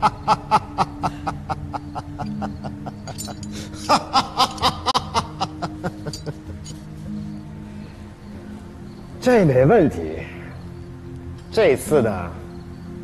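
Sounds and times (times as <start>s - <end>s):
man laughing: 0.0s - 6.4s.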